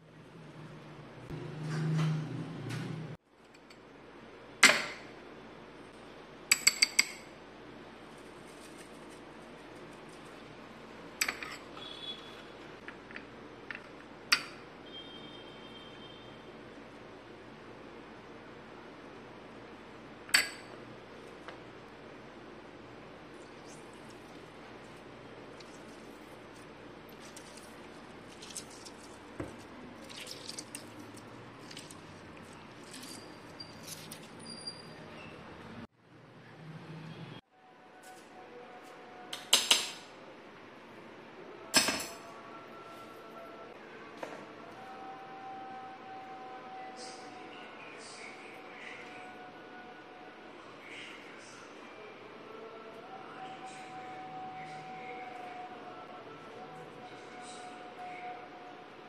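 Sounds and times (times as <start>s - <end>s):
juice dripping: 23.3s - 34.2s.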